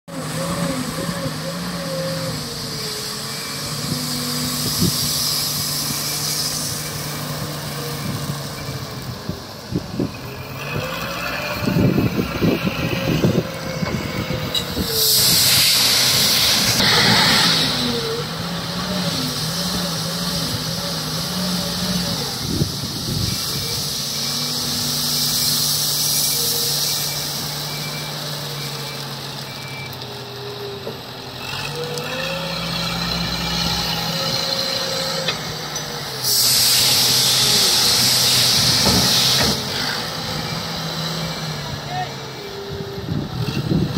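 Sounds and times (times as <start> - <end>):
wheel loader diesel engine revving: 0.1 - 43.9
loud hiss: 14.5 - 28.7, 34.2 - 40.5.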